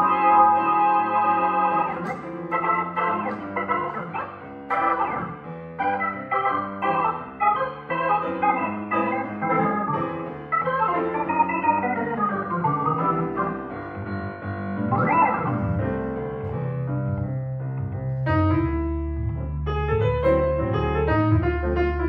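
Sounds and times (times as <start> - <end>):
acoustic grand piano: 0.0 - 22.0
electric keyboard: 0.0 - 22.0
low bass line: 12.2 - 22.0.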